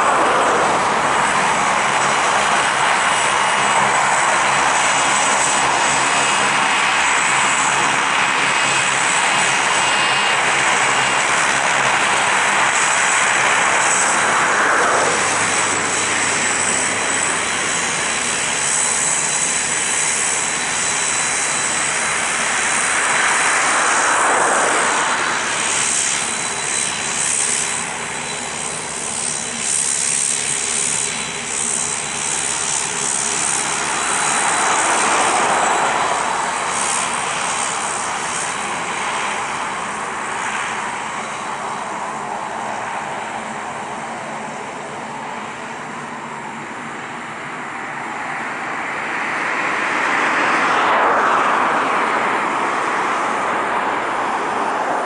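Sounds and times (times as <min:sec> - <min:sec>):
turboprop engines running: 0:00.0 - 0:55.0.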